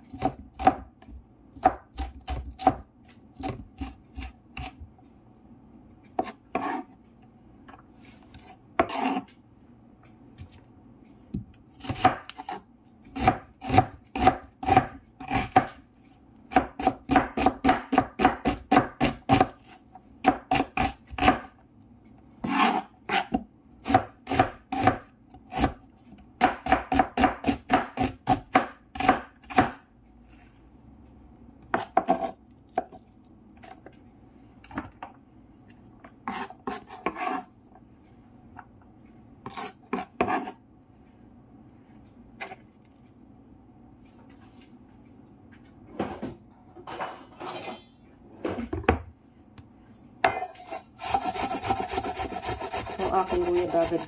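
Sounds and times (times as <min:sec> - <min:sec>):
knife chopping on wooden board: 0:00.1 - 0:04.8, 0:08.8 - 0:09.3, 0:11.4 - 0:15.8, 0:16.5 - 0:21.5, 0:22.4 - 0:25.8, 0:26.4 - 0:29.8, 0:31.7 - 0:33.0, 0:50.2 - 0:54.0.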